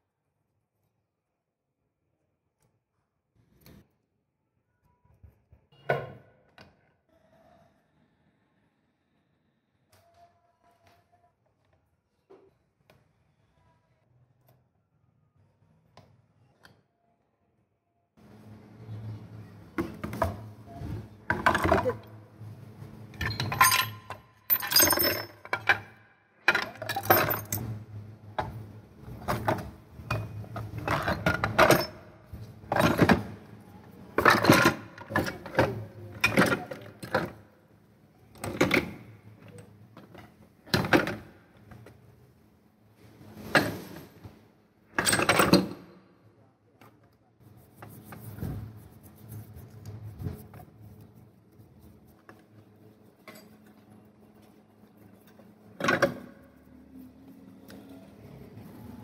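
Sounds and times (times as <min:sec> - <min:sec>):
metal parts clattering in plastic tub: 0:23.2 - 0:25.9, 0:26.5 - 0:27.6, 0:34.2 - 0:35.6.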